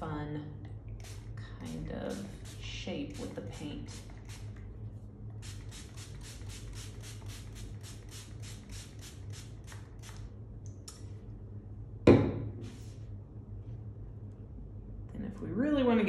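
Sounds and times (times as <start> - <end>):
spray bottle hissing squirts: 3.9 - 4.5, 5.4 - 10.2.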